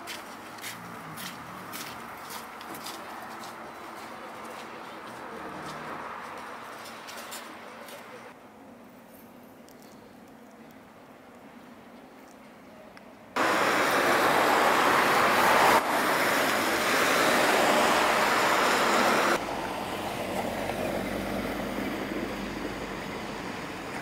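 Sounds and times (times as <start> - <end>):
car tyres hissing on wet road: 13.4 - 23.7.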